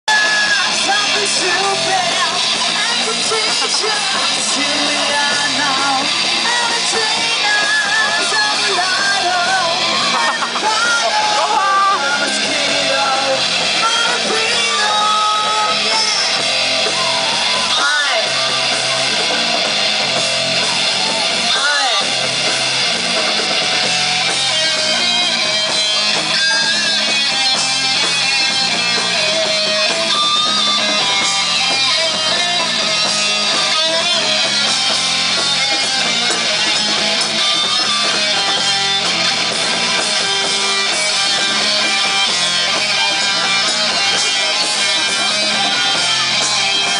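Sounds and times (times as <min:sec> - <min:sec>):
electric guitars: 0:00.0 - 0:46.9
person singing: 0:00.1 - 0:19.4
drum kit: 0:00.1 - 0:46.9.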